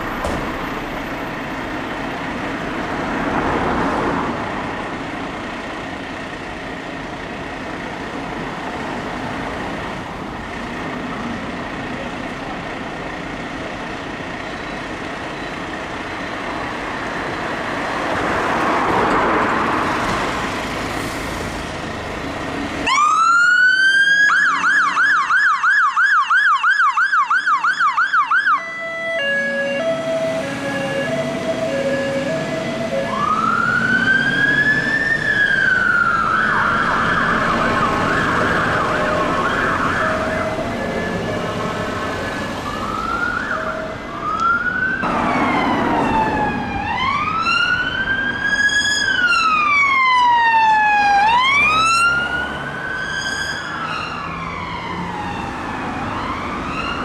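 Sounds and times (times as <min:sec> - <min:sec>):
traffic noise: 0:00.0 - 0:57.0
fire engine siren: 0:22.8 - 0:57.0
police car wail siren: 0:22.8 - 0:57.0.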